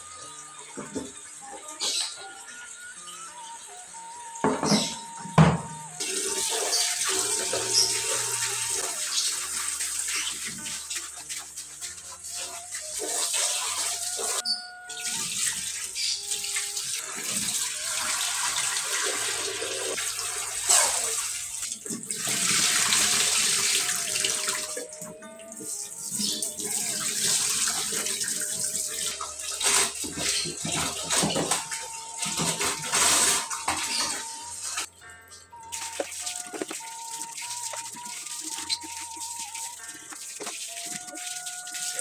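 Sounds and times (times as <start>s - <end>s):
tap water splashing into a sink: 0.7s - 2.0s, 35.7s - 42.0s.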